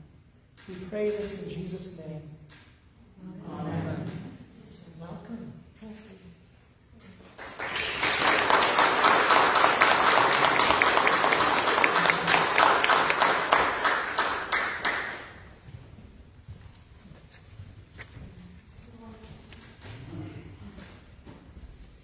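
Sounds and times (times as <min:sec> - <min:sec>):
congregation applauding: 0:07.3 - 0:15.5.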